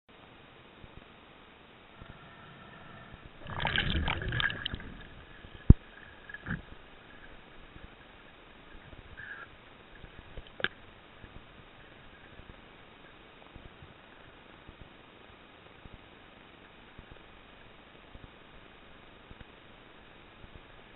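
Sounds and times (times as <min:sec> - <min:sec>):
muffled underwater noise: 0:01.9 - 0:14.4.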